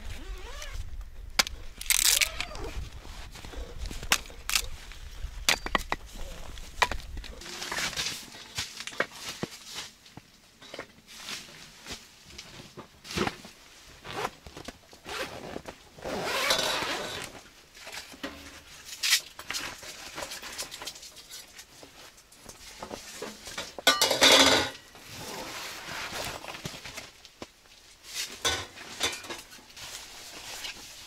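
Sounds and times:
bag unzipping: 0:00.0 - 0:00.8, 0:15.0 - 0:17.3.

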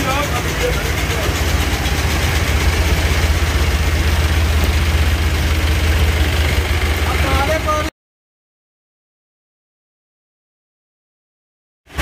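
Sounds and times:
pickup truck engines idling: 0:00.0 - 0:07.9.

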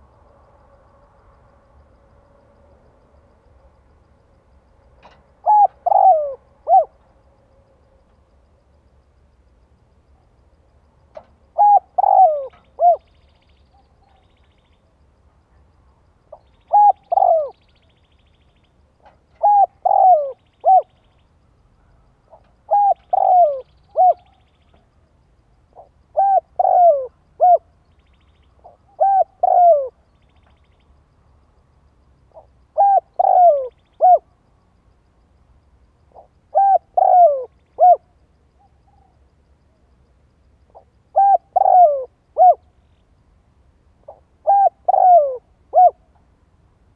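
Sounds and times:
dove cooing: 0:05.4 - 0:07.0, 0:11.5 - 0:14.2, 0:16.3 - 0:17.7, 0:19.3 - 0:21.0, 0:21.9 - 0:24.4, 0:25.7 - 0:27.7, 0:28.6 - 0:30.0, 0:32.3 - 0:34.4, 0:36.1 - 0:39.1, 0:40.7 - 0:42.7, 0:44.0 - 0:46.1.

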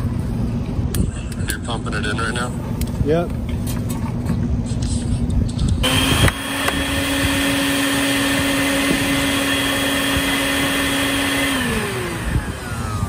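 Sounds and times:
shop vacuum whining: 0:05.8 - 0:13.0.

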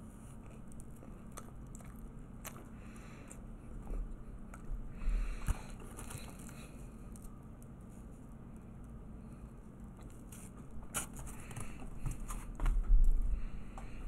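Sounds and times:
person chewing food: 0:00.0 - 0:14.0.

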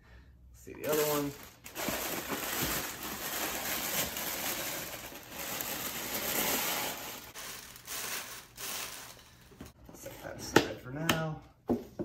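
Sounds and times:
tissue paper crinkling: 0:00.8 - 0:09.5.

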